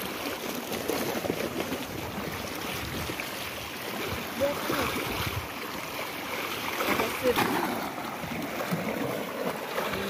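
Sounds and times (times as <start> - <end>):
sea waves washing against rocks: 0.0 - 10.0
wind buffeting microphone: 4.0 - 5.6.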